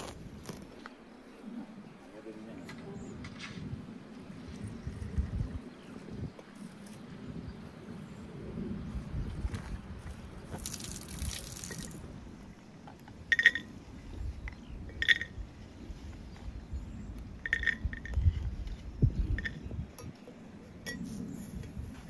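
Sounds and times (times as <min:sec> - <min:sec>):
metal clinking on iron teapot: 0:13.3 - 0:13.7, 0:14.9 - 0:15.4, 0:17.4 - 0:18.2.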